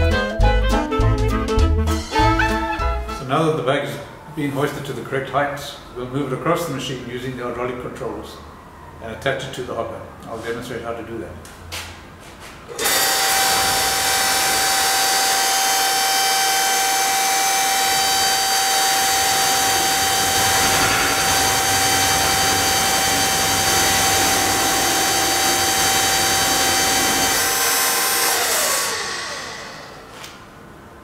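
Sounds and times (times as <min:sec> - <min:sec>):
hydraulic pump whining: 0:12.7 - 0:31.0.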